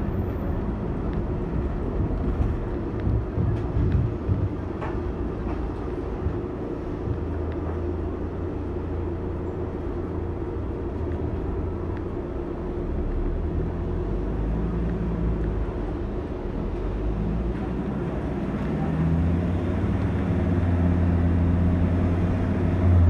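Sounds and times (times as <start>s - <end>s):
car engine and tyre rumble: 0.0s - 23.0s.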